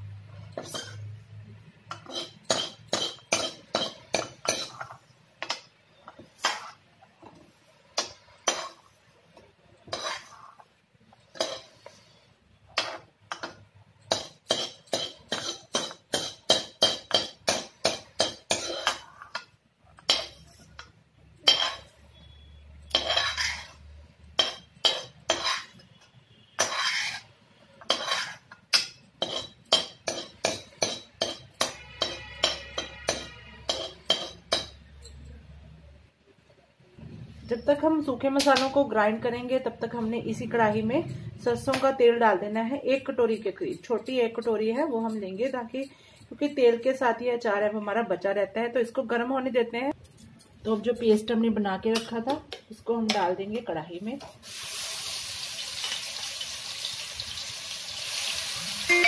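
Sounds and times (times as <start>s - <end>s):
ladle scraping metal pan: 9.9s - 10.6s, 22.9s - 23.8s, 25.3s - 25.8s, 26.6s - 27.3s, 27.9s - 28.5s.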